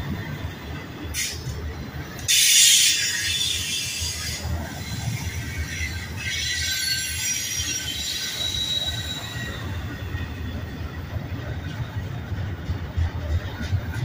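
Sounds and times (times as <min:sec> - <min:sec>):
train wheels rumbling on rail: 0:00.0 - 0:14.0
high-pitched wheel squeal: 0:02.3 - 0:10.0.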